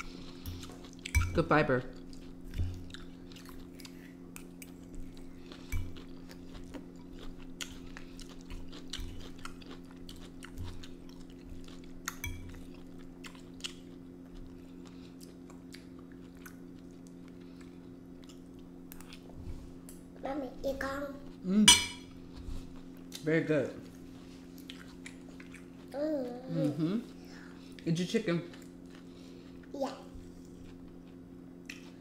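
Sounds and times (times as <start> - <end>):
steady low hum: 0.0 - 32.0
chewing and biting food: 2.0 - 19.3, 24.2 - 25.9.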